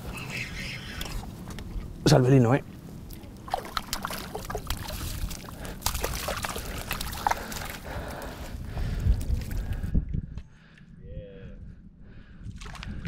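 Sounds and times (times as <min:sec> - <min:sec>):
fish splashing at water surface: 0:03.2 - 0:07.8.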